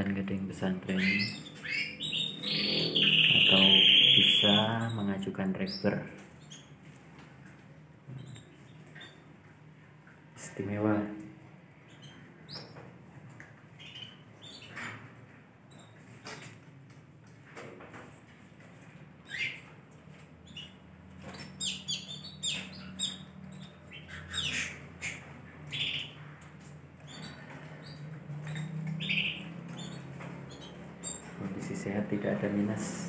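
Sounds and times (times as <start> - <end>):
canaries chirping: 0.3 - 7.0, 8.1 - 9.7, 11.7 - 12.9, 13.7 - 15.0, 19.2 - 33.0.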